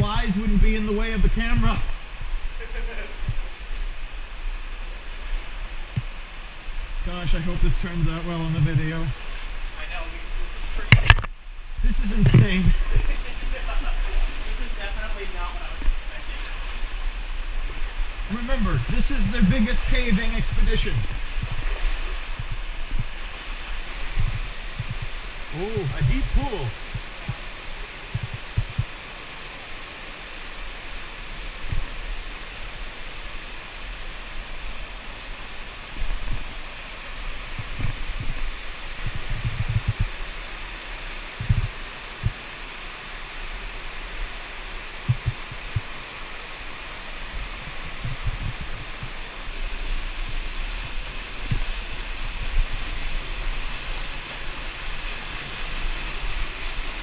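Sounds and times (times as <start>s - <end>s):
stream water rushing: 0.0s - 57.0s.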